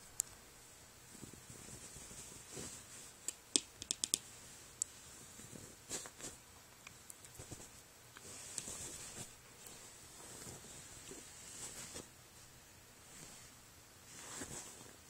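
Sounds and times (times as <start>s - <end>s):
sharp clicks: 3.3s - 4.2s.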